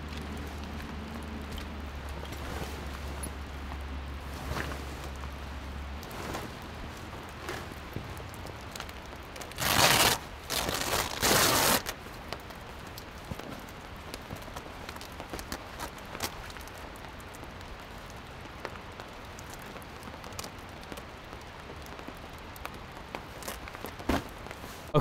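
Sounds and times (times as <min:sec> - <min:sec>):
tent zipper rasping: 0:09.5 - 0:11.9.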